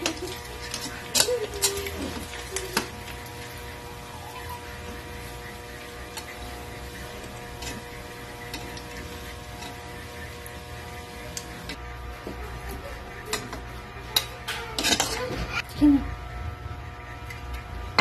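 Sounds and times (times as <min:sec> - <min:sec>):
meat frying in a wok: 0:00.0 - 0:12.0
steady hum: 0:00.0 - 0:18.0.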